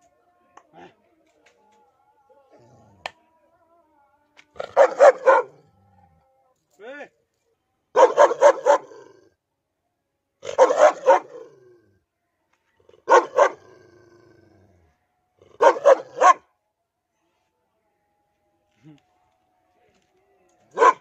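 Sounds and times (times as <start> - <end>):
dog barking: 4.6 - 5.7, 7.9 - 9.1, 10.4 - 11.5, 13.0 - 13.8, 15.6 - 16.5, 20.7 - 21.0.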